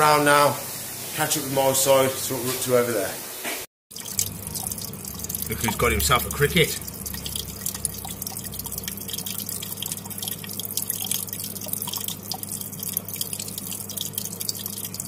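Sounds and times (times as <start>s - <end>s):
water trickling and dripping: 3.9s - 15.0s
steady low hum: 4.0s - 15.0s.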